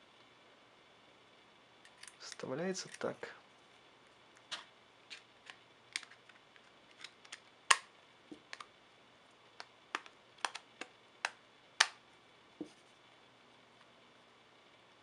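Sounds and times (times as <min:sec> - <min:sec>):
sharp plastic clicks: 0:09.6 - 0:12.0.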